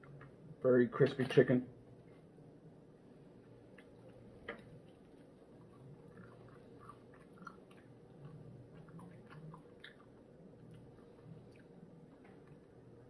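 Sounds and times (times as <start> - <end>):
wet mouth clicks: 3.7 - 11.8
close-up chewing crunches: 3.7 - 12.8.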